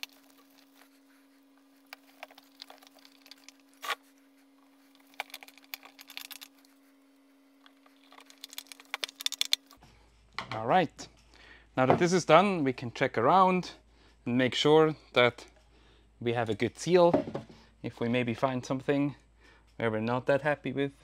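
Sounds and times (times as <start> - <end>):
faint steady hum: 0.0 - 21.0
small screws clicking and scraping: 1.9 - 4.0, 4.9 - 6.7, 7.6 - 9.8.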